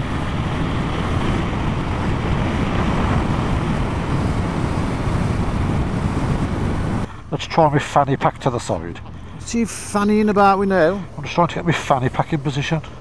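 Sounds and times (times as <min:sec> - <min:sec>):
motorcycle running: 0:00.0 - 0:07.1
wind rushing on microphone: 0:00.0 - 0:07.2
road noise: 0:00.0 - 0:13.0.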